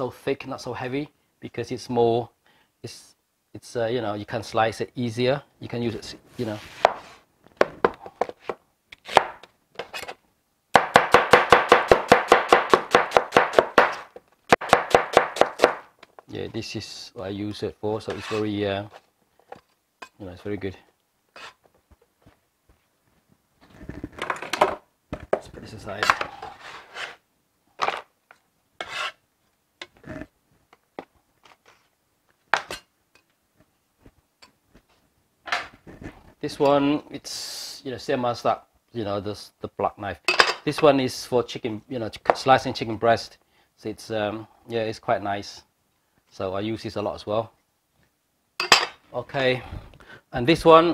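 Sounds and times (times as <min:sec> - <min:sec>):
cleaver chopping on cutting board: 0:10.8 - 0:15.8
cleaver scraping plastic cutting board: 0:18.1 - 0:18.5, 0:21.4 - 0:21.6, 0:26.0 - 0:27.2, 0:28.8 - 0:29.2.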